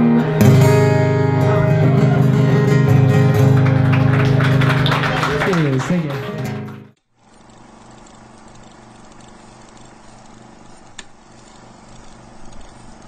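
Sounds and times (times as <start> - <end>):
film projector whirring: 6.6 - 13.0
light crackle: 7.2 - 13.0.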